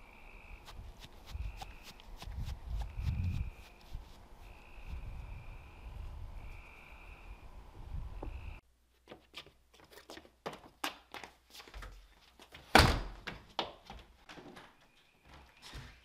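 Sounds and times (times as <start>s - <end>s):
frogs and insects chorus: 0.0s - 0.7s, 4.4s - 7.5s
door thumping shut: 12.7s - 13.2s.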